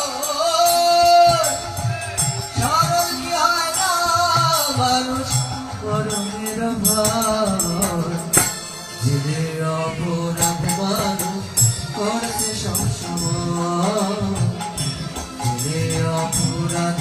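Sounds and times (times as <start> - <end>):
man singing: 0.0 - 17.0
hand percussion clicking: 0.6 - 8.7.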